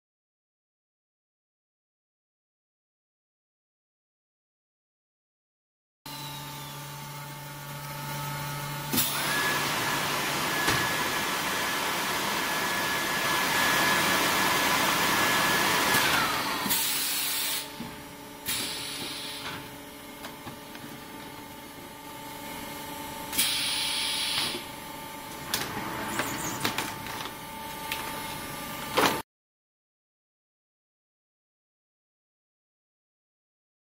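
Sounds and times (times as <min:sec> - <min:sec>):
machine hum: 0:06.1 - 0:29.2.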